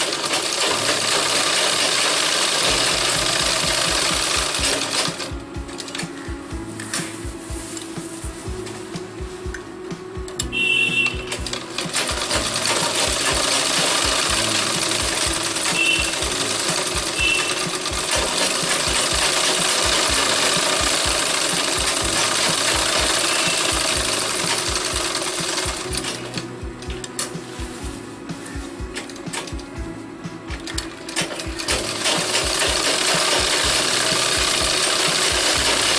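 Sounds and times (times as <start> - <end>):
sewing machine running: 0.0 - 6.3, 10.5 - 27.3, 30.5 - 35.9.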